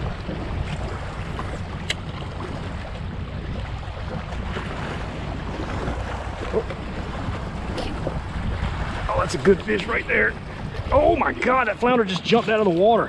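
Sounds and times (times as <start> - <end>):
water lapping around a kayak: 0.0 - 13.0
wind buffeting the microphone: 0.0 - 13.0.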